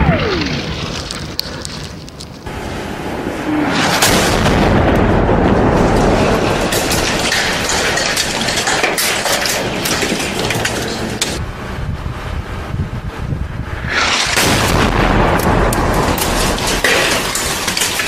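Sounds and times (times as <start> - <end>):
loud dense rumbling: 0.0 - 18.0
sharp cracks and bangs: 3.8 - 11.4, 13.8 - 18.0.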